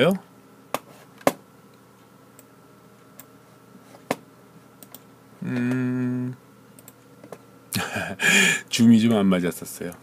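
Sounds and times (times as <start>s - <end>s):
computer mouse clicks: 4.8s - 5.1s, 6.8s - 7.0s
man humming: 5.4s - 6.4s, 7.8s - 8.7s.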